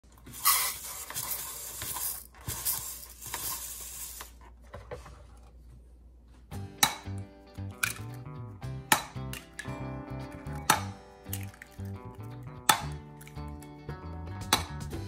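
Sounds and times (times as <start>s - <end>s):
music: 6.5s - 15.0s.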